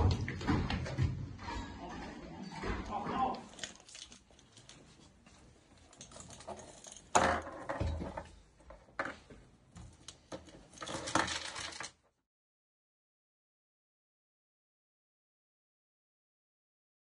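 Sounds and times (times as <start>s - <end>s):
small metal objects clinking: 3.5s - 4.8s, 5.8s - 8.0s, 10.3s - 12.0s.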